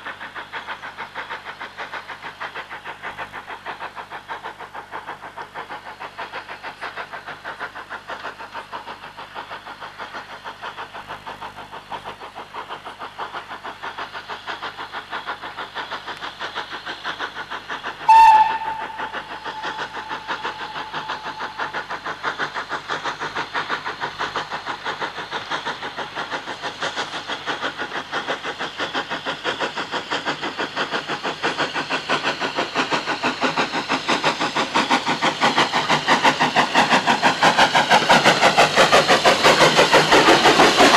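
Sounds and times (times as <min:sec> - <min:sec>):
steam locomotive chuffing: 0:00.0 - 0:40.9
train whistle blast: 0:18.0 - 0:21.6.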